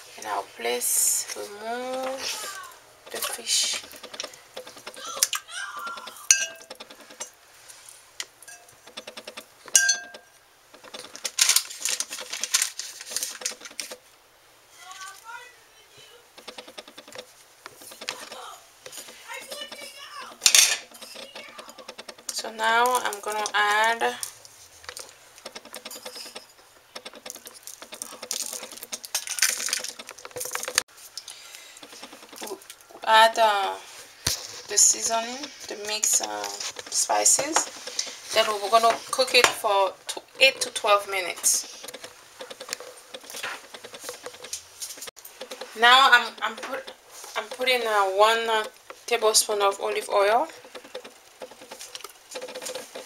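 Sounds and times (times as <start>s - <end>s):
scraping: 0.0s - 14.0s, 14.8s - 53.0s
dishes and utensils clinking: 3.1s - 7.4s, 8.4s - 12.6s, 17.8s - 22.3s, 34.6s - 39.7s
spice sprinkling on paper: 10.8s - 13.9s, 27.1s - 32.8s.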